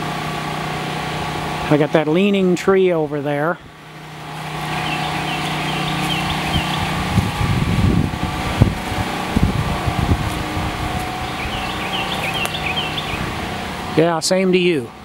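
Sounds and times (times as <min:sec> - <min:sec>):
generator humming: 0:00.0 - 0:15.0
bird chirping: 0:04.6 - 0:07.1, 0:11.2 - 0:13.3
wind buffeting microphone: 0:04.6 - 0:14.0.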